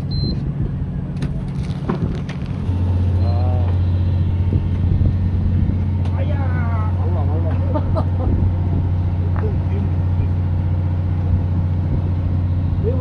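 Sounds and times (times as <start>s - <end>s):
boat engine drone: 0.0s - 13.0s.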